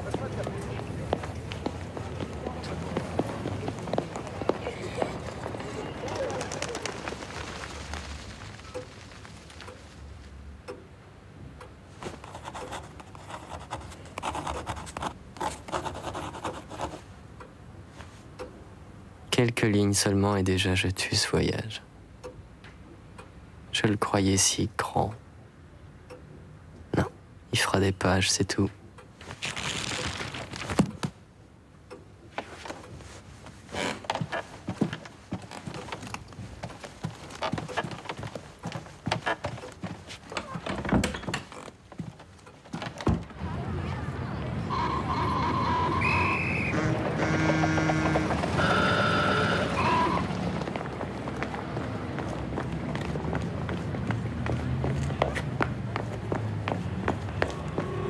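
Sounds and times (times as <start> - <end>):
pen scratching on paper: 12.0 - 17.0
footsteps on a hard floor: 33.4 - 40.8.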